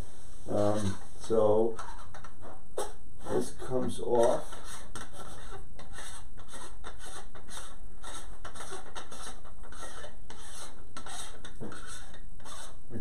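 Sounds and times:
steady background hiss: 0.0s - 1.8s
hands scraping telescope tube: 0.6s - 12.8s.

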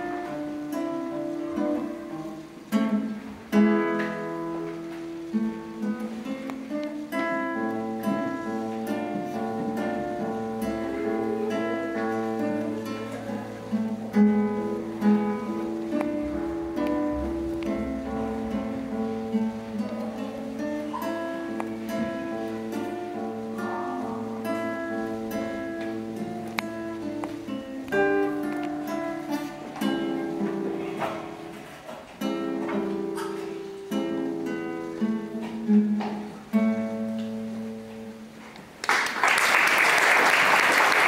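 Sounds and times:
solo classical guitar: 0.0s - 39.6s
audience applause: 38.8s - 41.0s.

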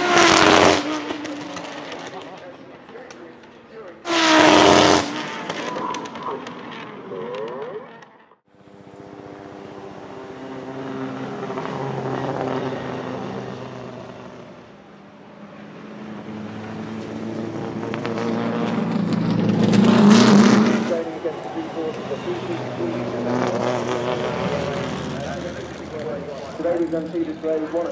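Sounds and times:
rally car engine passing: 0.0s - 27.9s.

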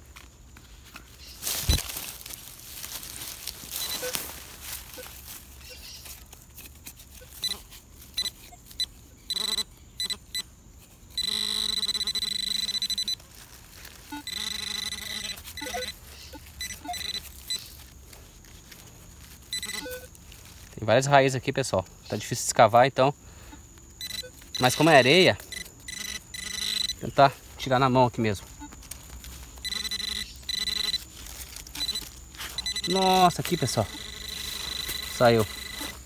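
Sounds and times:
short electronic beeps: 3.8s - 4.2s, 7.2s - 7.6s, 8.2s - 10.5s, 11.2s - 13.2s, 14.1s - 17.7s, 19.5s - 20.1s, 24.0s - 27.1s, 29.6s - 31.0s, 31.8s - 36.0s
steady buzzing alert: 8.2s - 10.5s, 11.1s - 13.2s, 14.1s - 17.7s, 19.5s - 20.1s, 24.0s - 27.2s, 29.6s - 31.1s, 31.7s - 36.0s.

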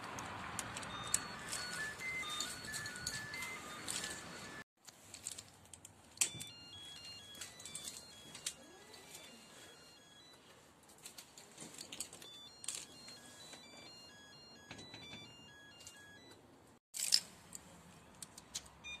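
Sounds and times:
intercom electronic beeps tune: 0.8s - 4.6s, 6.2s - 10.4s, 12.2s - 16.4s.

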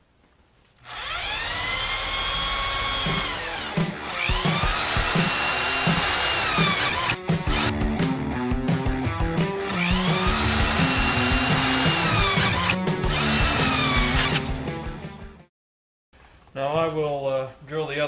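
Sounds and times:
electric drill whining: 0.8s - 7.7s, 9.5s - 14.6s.

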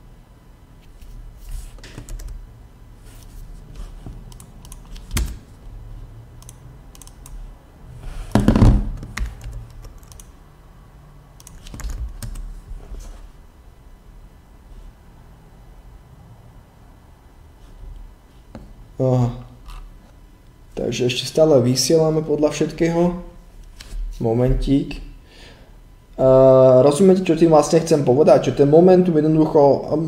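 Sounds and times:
typing on computer keyboard: 1.8s - 2.4s, 4.3s - 5.4s, 6.4s - 7.4s, 9.0s - 10.4s, 11.4s - 12.5s
loud thump: 8.3s - 9.0s.

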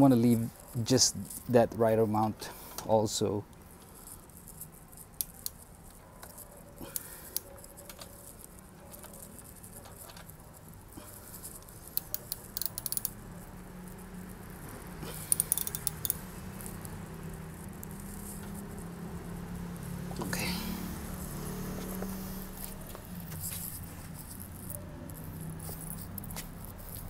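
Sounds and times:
hand tool clicking on metal: 11.9s - 13.2s, 15.1s - 16.8s.

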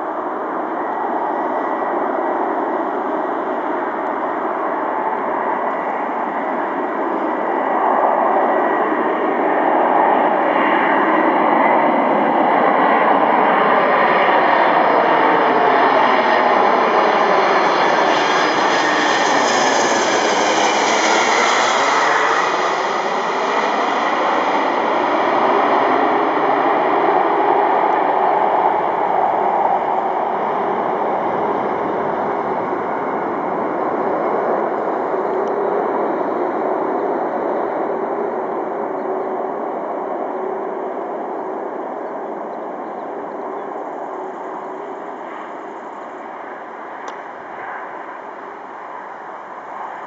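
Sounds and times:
jet rumble overhead: 0.0s - 50.0s
hissing jet whine: 12.6s - 38.8s.

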